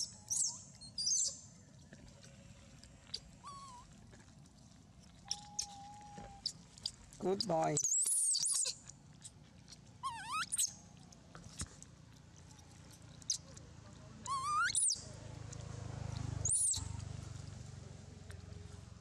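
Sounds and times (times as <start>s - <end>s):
baby monkey squealing: 0.0s - 1.4s, 3.1s - 3.9s, 5.3s - 9.3s, 10.0s - 10.8s, 14.2s - 15.0s, 16.4s - 16.9s.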